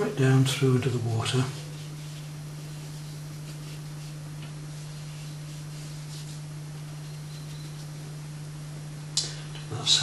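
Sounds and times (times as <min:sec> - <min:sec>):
low electrical hum and hiss: 0:00.0 - 0:10.0
brush swishing on paper: 0:01.4 - 0:08.0.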